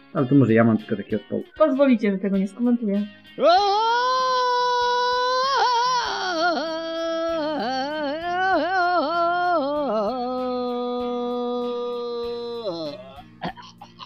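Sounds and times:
person singing wordless phrase: 3.3 - 13.2.

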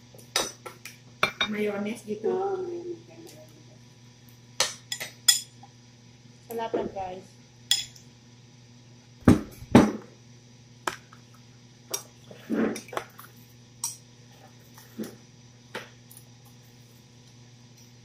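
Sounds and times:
metal spoon clinking on plates: 4.6 - 5.5, 7.7 - 8.0.

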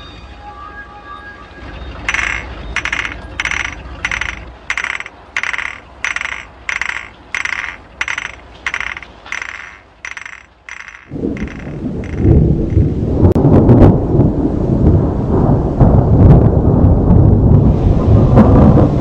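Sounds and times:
crackling clicking rattle: 2.1 - 12.9
low rumble: 11.1 - 19.0.

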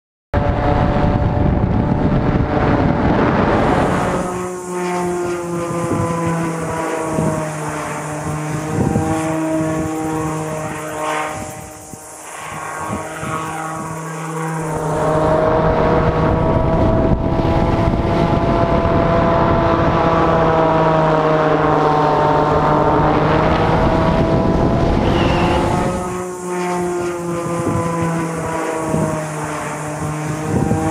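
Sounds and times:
propeller engine droning whine: 0.3 - 30.9
air rushing past: 1.3 - 18.4.

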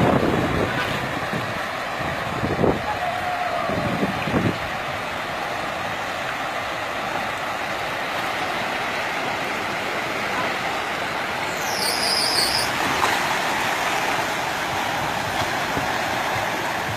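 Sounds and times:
cars driving through flood water: 0.0 - 16.9
high-pitched squeal: 11.5 - 12.8.

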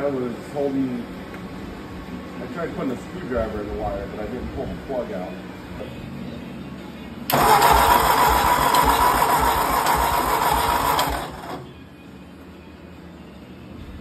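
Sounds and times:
tractor engine cranking: 7.3 - 11.7.

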